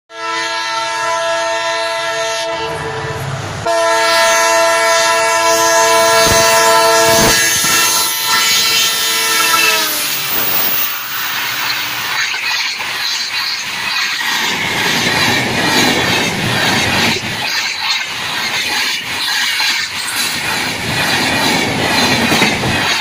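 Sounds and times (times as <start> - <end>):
locomotive horn blasts: 0.1 - 10.7
train coaches rumbling past: 0.1 - 23.0.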